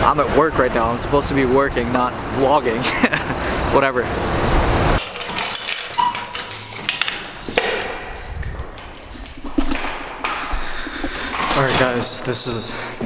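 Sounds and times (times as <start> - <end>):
keys clinking on ring: 5.0 - 7.6
key turning in lock: 5.0 - 10.2
lock and door knocks: 5.0 - 10.5.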